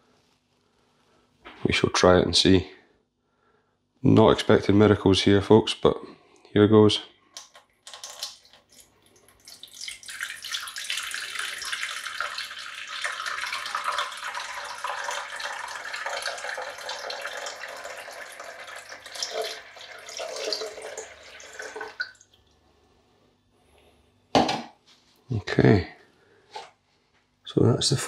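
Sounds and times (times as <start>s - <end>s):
water pouring and splashing: 7.4s - 22.5s.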